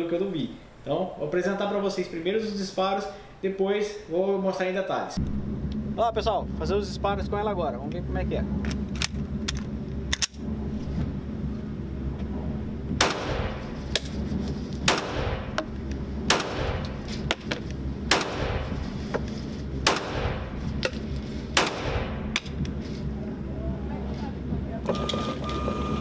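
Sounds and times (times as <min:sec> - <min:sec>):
steady low hum: 0:00.0 - 0:26.0
fainter distant gunshots: 0:12.9 - 0:13.9, 0:14.9 - 0:15.6, 0:16.2 - 0:16.9, 0:18.0 - 0:18.9, 0:19.8 - 0:20.6, 0:21.5 - 0:22.6
pistol shots indoors: 0:13.0 - 0:13.8, 0:14.9 - 0:15.6, 0:16.3 - 0:17.0, 0:18.1 - 0:18.8, 0:19.8 - 0:20.6, 0:21.6 - 0:22.5.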